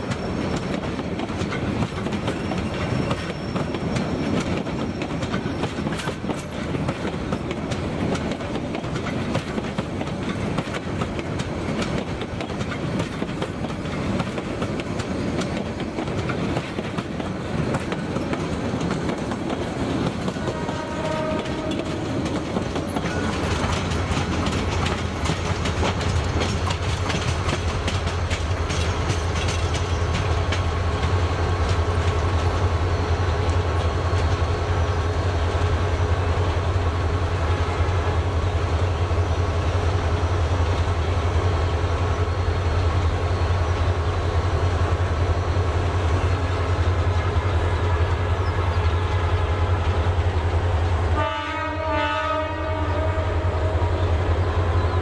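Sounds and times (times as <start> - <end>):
train wheels clattering over rail joints: 0.0 - 32.7.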